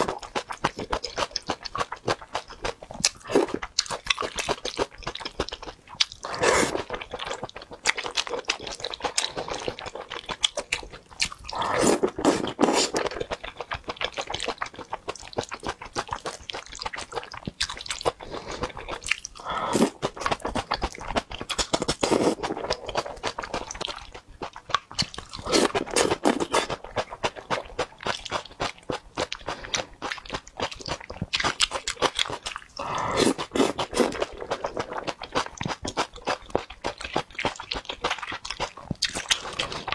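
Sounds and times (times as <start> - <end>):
wet chewing and mouth clicks: 0.0 - 39.9
slurping from spoon: 6.2 - 7.0, 11.5 - 13.2, 18.1 - 20.1, 25.4 - 26.8, 32.8 - 35.0.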